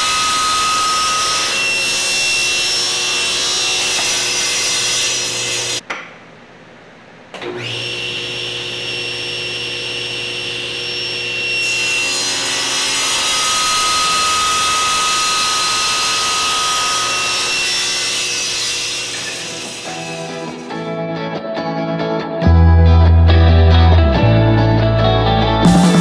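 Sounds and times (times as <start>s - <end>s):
table saw cutting wood: 0.0s - 5.8s, 7.4s - 20.9s, 25.6s - 26.0s.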